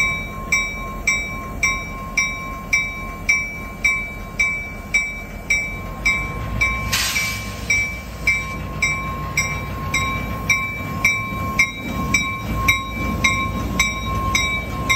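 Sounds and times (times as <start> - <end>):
diesel locomotive idling: 0.0 - 14.9
short hiss: 6.9 - 8.2
bell ringing: 7.7 - 14.9.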